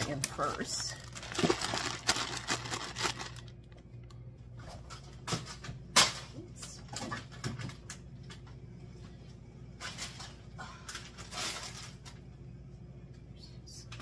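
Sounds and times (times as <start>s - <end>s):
plastic bags crinkling: 0.0s - 3.8s, 9.8s - 12.2s.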